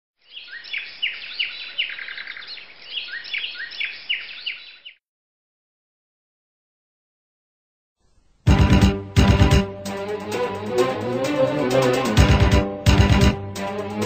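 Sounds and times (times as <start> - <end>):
bird chirping: 0.2 - 5.0.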